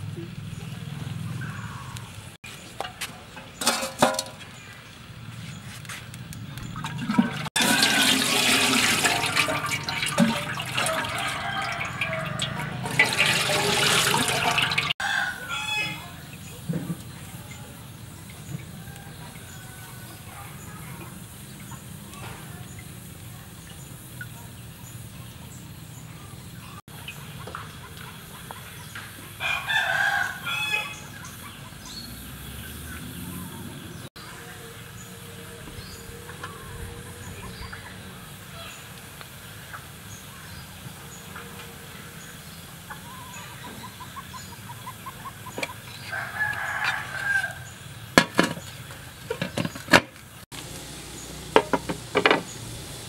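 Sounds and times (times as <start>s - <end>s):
water boiling hard: 6.6s - 15.0s, 45.6s - 53.0s
rooster crowing: 10.2s - 16.2s, 29.4s - 31.2s, 46.0s - 47.8s.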